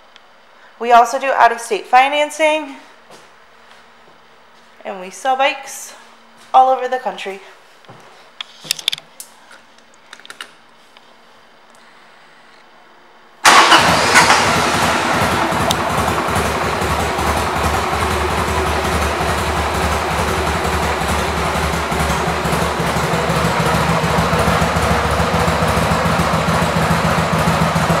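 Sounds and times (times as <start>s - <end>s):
motorcycle engine starting and idling: 13.4s - 28.0s.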